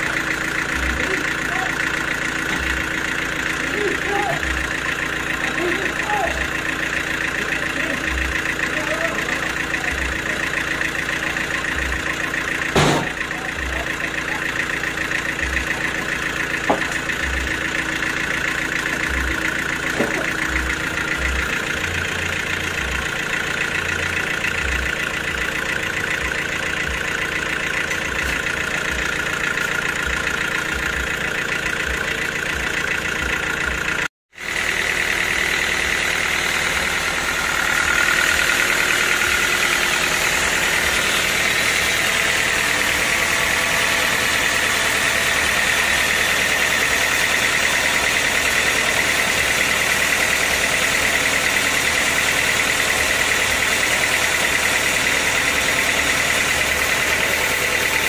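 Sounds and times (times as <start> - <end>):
band sawmill humming: 0.0 - 58.0
sharp knocks: 12.7 - 13.2.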